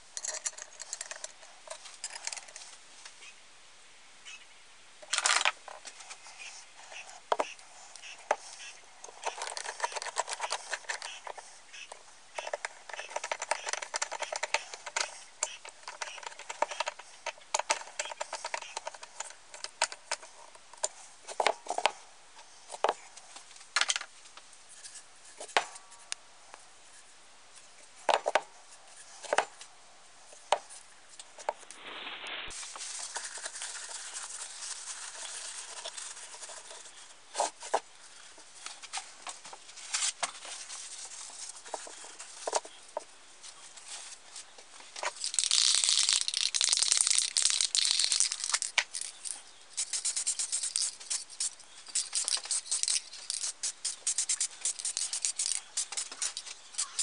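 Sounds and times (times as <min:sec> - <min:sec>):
screwdriver clicking and scraping: 0:00.2 - 0:02.6, 0:09.1 - 0:11.4, 0:12.4 - 0:21.9, 0:45.0 - 0:57.0.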